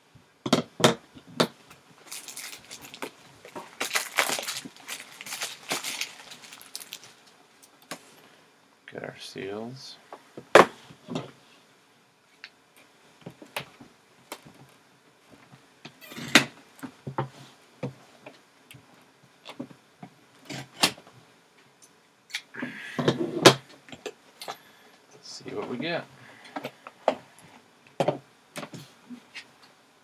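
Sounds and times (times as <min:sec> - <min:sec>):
handling rustles: 0:01.7 - 0:08.1.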